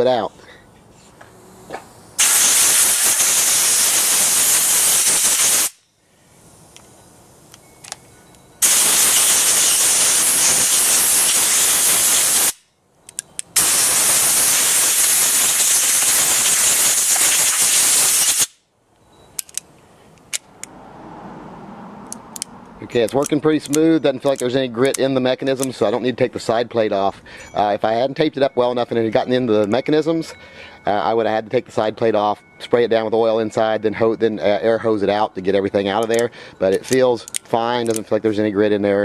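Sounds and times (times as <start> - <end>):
compressed air blow gun hissing: 0.9 - 6.8, 8.6 - 12.6, 13.6 - 18.6
revolver action clicks: 19.4 - 20.8.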